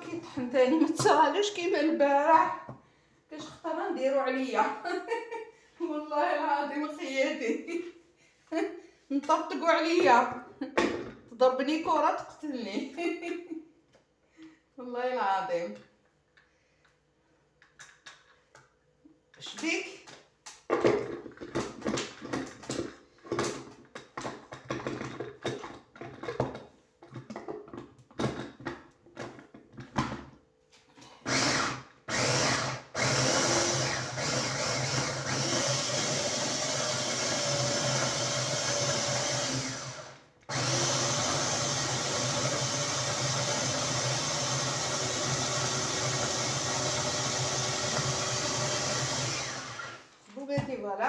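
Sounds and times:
electric food chopper running: 31.2s - 50.1s.

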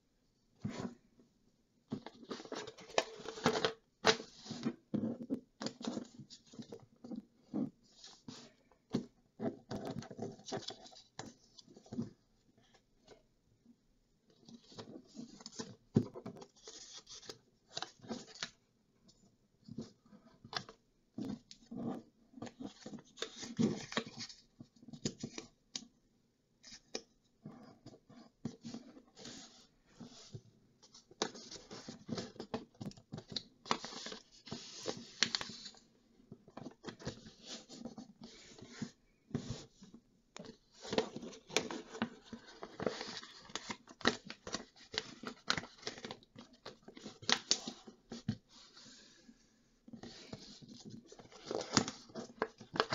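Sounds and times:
paper being folded and creased: 31.2s - 35.8s, 40.5s - 49.2s, 49.9s - 52.9s.

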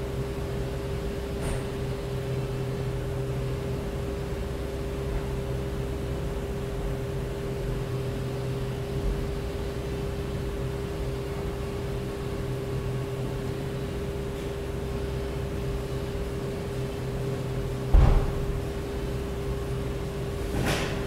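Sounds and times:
machine hum with steady tone: 0.0s - 21.0s.

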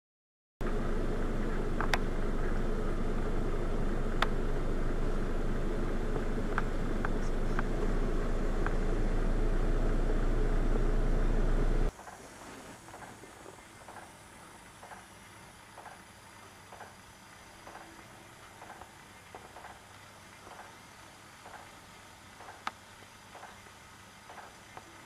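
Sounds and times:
low rumble: 0.6s - 11.9s
constant hum: 0.6s - 25.0s.

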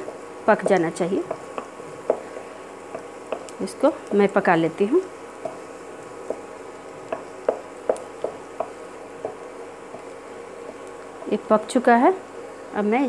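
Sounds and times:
spatula tapping and scraping pan: 0.0s - 3.6s, 5.4s - 11.7s
faint sizzle of frying: 0.0s - 13.0s.

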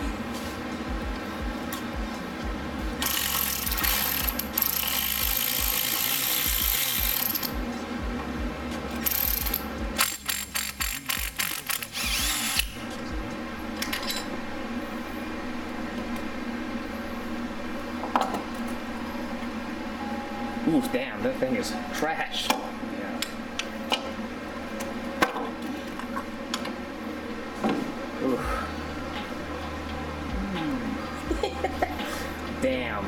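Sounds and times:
electric ratchet whirring: 3.0s - 7.6s, 9.0s - 12.8s
quick ratchet clicks: 3.0s - 7.6s, 9.1s - 12.7s.

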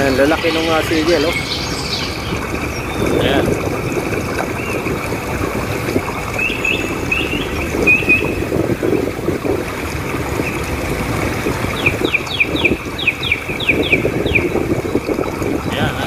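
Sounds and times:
high falling chirps: 0.0s - 3.4s.

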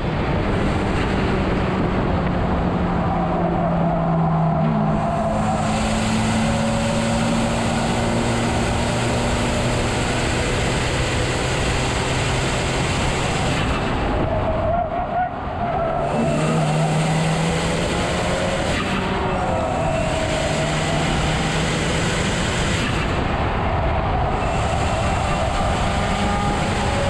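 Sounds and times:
car engine pulling hard: 0.0s - 27.0s
road and wind noise: 0.0s - 27.0s.

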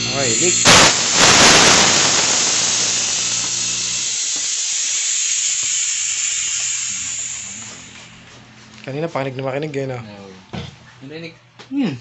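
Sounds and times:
pressurized gas hissing: 0.0s - 8.4s.

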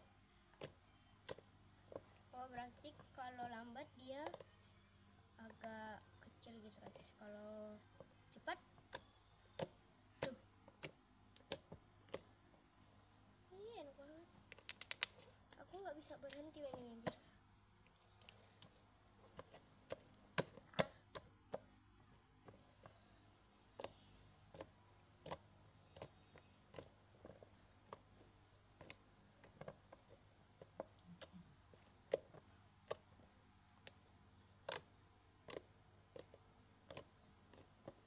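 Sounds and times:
slime clicking and popping: 8.8s - 12.4s, 14.5s - 15.2s, 23.7s - 38.0s.

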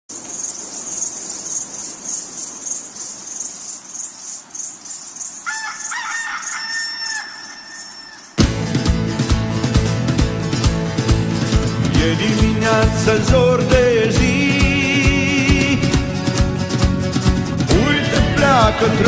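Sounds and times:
rooster crowing: 5.4s - 8.4s.

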